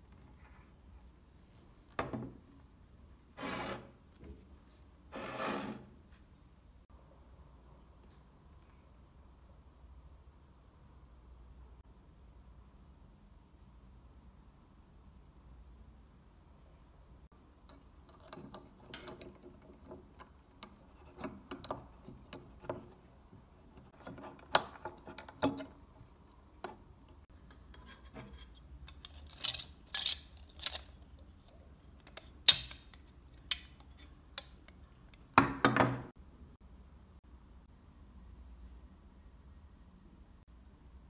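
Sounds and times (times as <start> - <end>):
plastic parts clicking and tapping: 17.6 - 23.1, 26.6 - 35.3.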